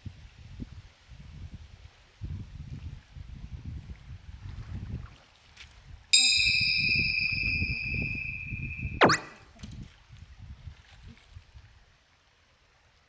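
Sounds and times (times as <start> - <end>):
chime-like ringing tone: 6.2 - 9.4
low wind rumble: 6.3 - 9.0.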